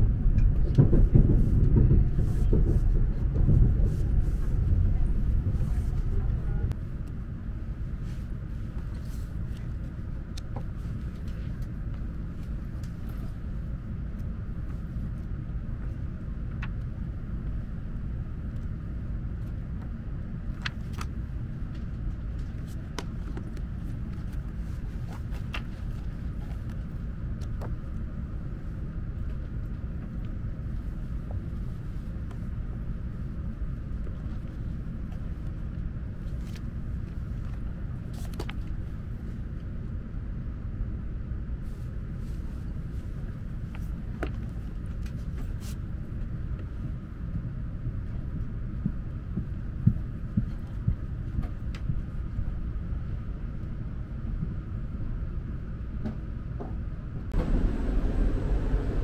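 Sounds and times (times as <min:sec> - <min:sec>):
train cabin rumble: 0:00.0 - 0:18.0, 0:56.1 - 0:59.0.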